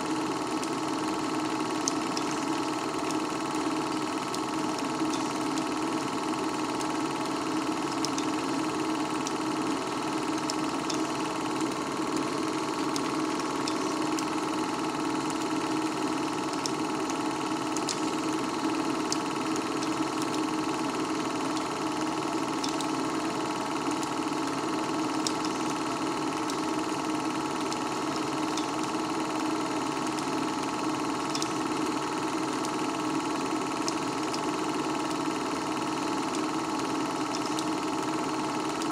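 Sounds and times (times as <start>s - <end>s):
film projector hum: 0.0s - 38.9s
faint projector clicks: 0.4s - 38.9s.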